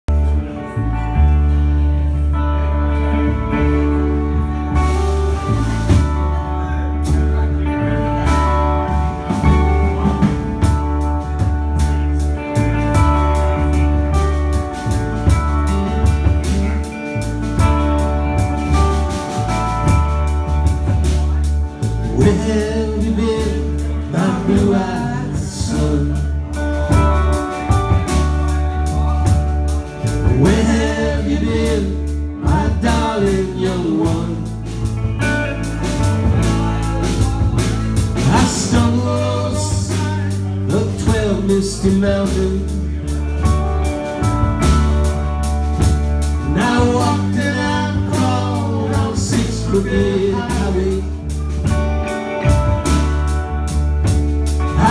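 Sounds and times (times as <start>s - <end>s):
rock band playing: 0.0s - 54.9s
man singing: 21.1s - 29.4s, 30.0s - 35.2s, 36.6s - 43.6s, 46.2s - 51.6s, 54.6s - 54.9s.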